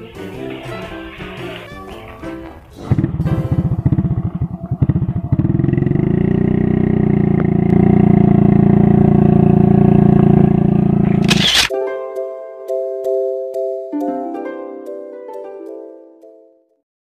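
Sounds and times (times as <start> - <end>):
motorcycle engine chugging: 2.0 - 11.5.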